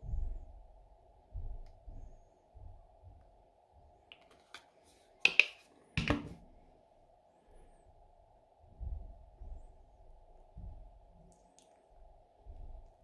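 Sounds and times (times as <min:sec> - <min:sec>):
faint steady hum: 0:00.0 - 0:13.0
plastic containers clicking: 0:04.1 - 0:04.6.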